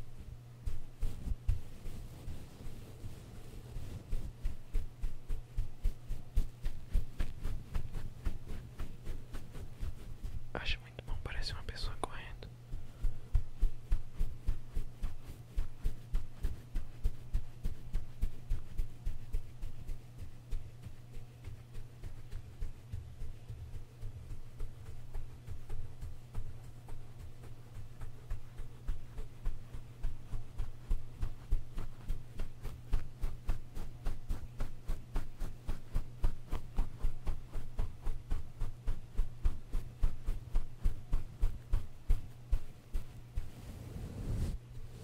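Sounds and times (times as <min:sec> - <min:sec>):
brush sweeping over microphone: 0:00.0 - 0:10.9, 0:40.3 - 0:45.0
brush swishing on microphone: 0:00.0 - 0:45.0
steady low hum: 0:00.0 - 0:45.0.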